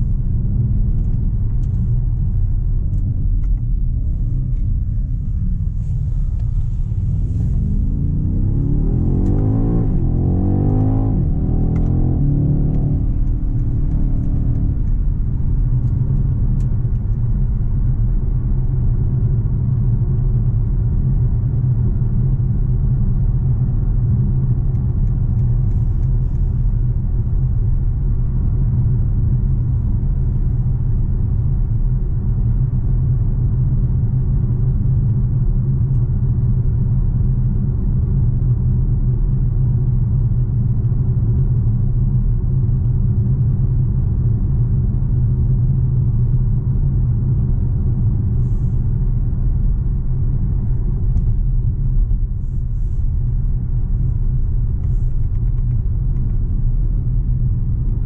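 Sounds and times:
tyre and road noise: 0.0 - 20.4
car engine running: 0.0 - 58.0.

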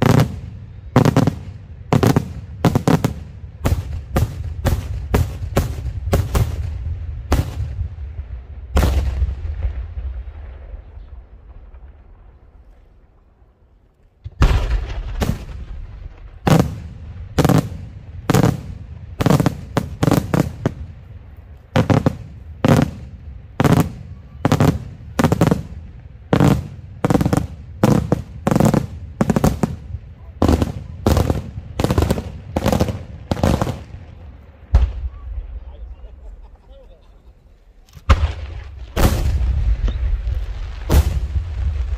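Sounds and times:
fireworks bangs: 0.0 - 13.6, 14.2 - 36.6, 37.7 - 41.9.

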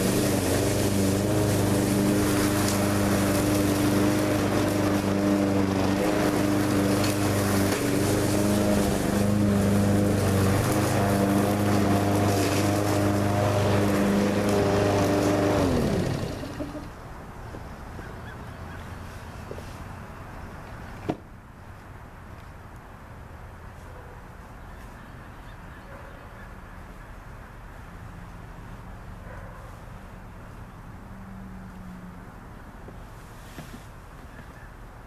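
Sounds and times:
lawn mower engine running: 0.0 - 17.1.

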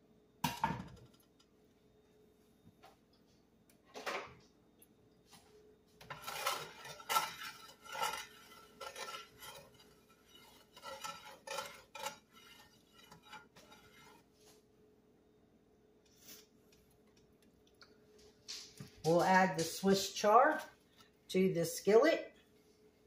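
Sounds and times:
spatula scraping skillet: 6.0 - 14.6.

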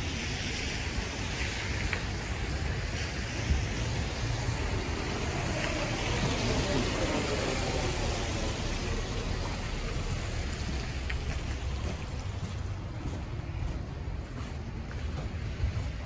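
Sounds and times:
traffic hiss: 0.0 - 16.0
wind rumble on microphone: 0.0 - 16.0.

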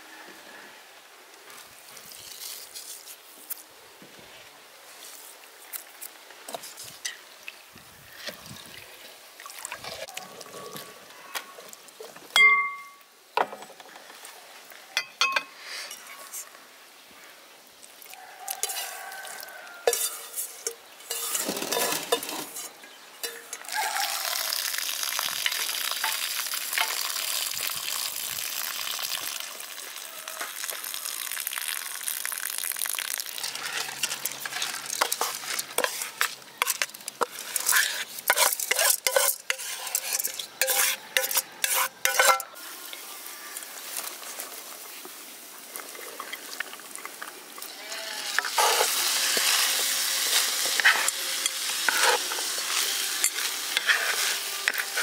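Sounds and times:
cooking hiss: 0.0 - 55.0
utensil scraping a pan: 19.8 - 23.6, 33.6 - 42.6, 48.4 - 55.0.

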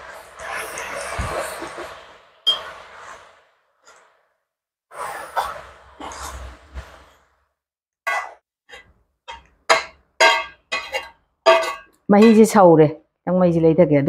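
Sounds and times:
ladle scraping metal wok: 4.9 - 7.1, 8.1 - 12.6.

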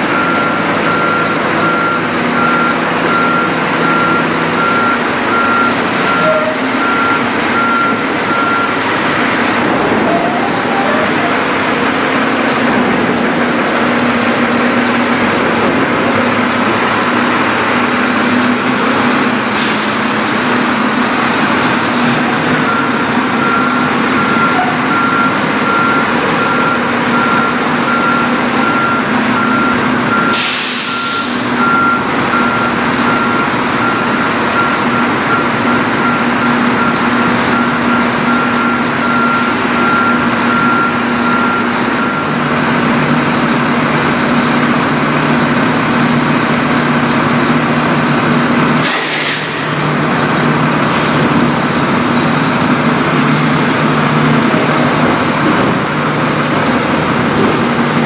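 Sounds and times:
garbage truck engine running: 0.0 - 58.0
backup alarm beeping: 0.1 - 19.4, 22.4 - 42.4
air brake hiss: 19.6 - 20.0, 30.3 - 31.5, 48.8 - 49.7.

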